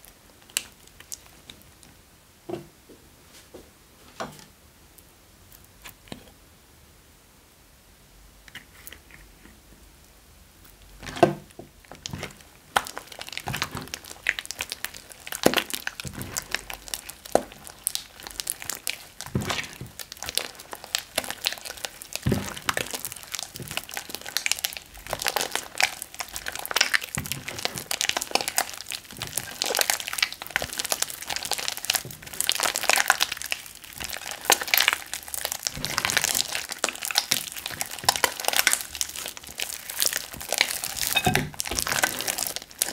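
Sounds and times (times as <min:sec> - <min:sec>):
sticky slime crackling: 0:00.0 - 0:01.8, 0:11.8 - 0:42.9.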